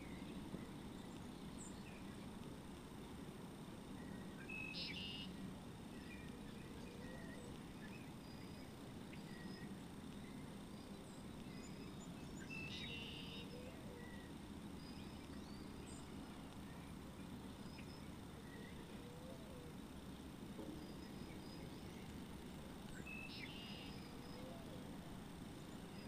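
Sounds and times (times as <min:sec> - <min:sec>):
steady low hum: 0:00.0 - 0:26.0
high bird chirps: 0:23.2 - 0:23.9.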